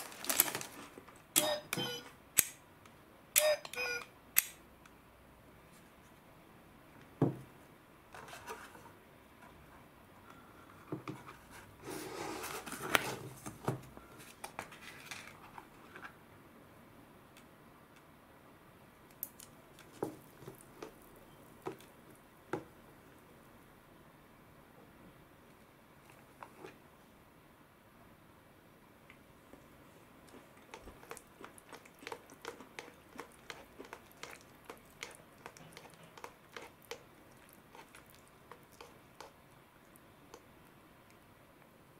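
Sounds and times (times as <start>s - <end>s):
paper lid rustling: 0.0s - 1.0s
snack bag crinkling: 0.0s - 1.0s, 30.3s - 39.3s.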